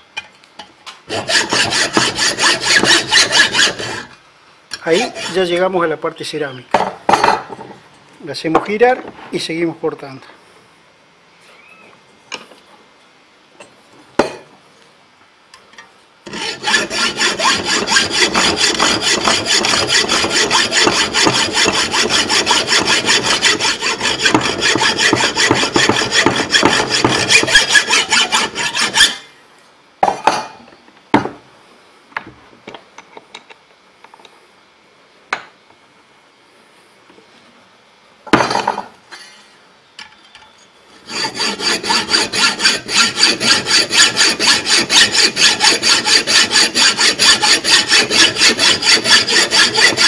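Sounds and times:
hacksaw cutting metal: 1.1 - 5.6, 16.2 - 29.2, 41.0 - 50.0.

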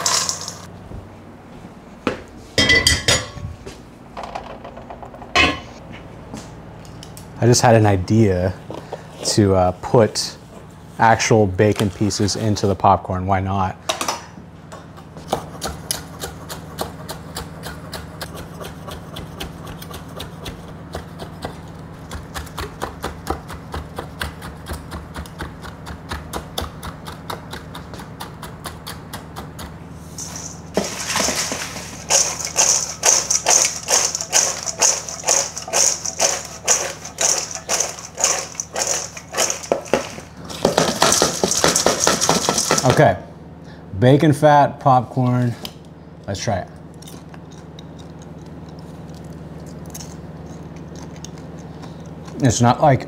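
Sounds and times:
popcorn rattling in metal bowl: 0.0 - 0.7, 30.2 - 43.1
knife chopping on wooden board: 15.2 - 29.8.

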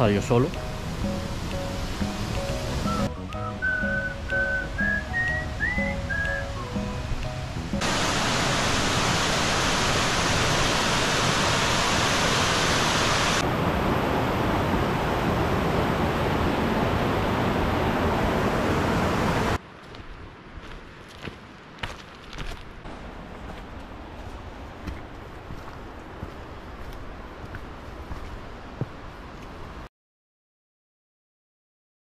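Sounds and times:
river white water rushing: 0.0 - 19.6
footsteps on stony trail: 19.6 - 29.6.

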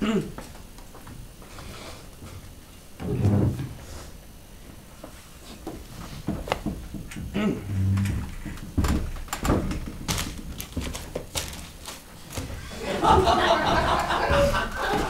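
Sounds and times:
footsteps on stage: 5.0 - 15.0
knocks and scuffs on stage: 5.0 - 15.0.

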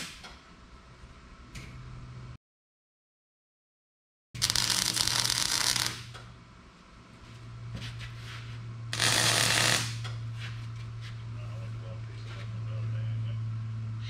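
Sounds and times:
welding arc crackling: 4.4 - 6.2, 8.9 - 10.1
steady low hum: 4.4 - 14.0.

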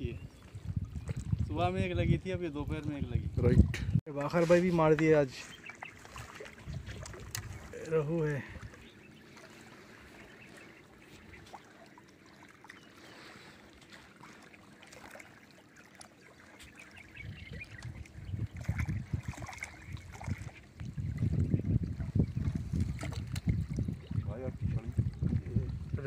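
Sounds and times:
low rumbling buffeting on microphone: 0.0 - 4.7, 6.5 - 9.3, 17.0 - 26.0
small waves lapping on rocky shore: 4.2 - 17.2.

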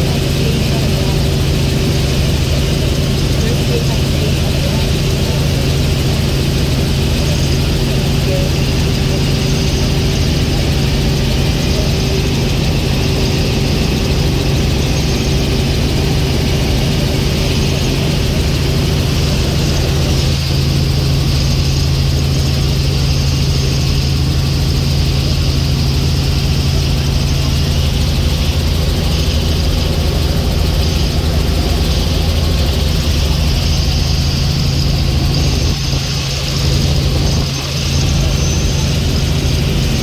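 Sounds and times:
helicopter engine and rotor hum: 0.0 - 40.0.

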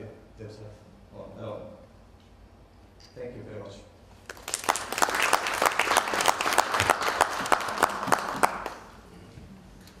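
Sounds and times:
audience applauding: 4.3 - 9.0.

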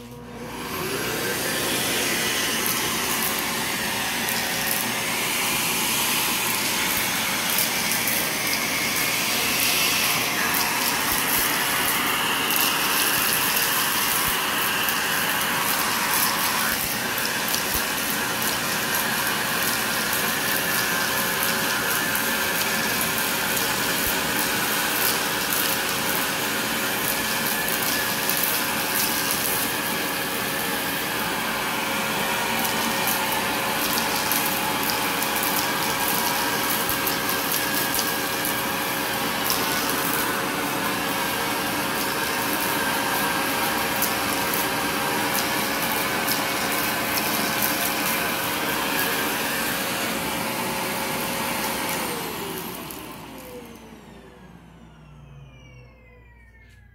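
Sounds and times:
vacuum cleaner running: 0.0 - 56.9
beads rattling up vacuum hose: 1.8 - 31.4, 32.0 - 50.0.

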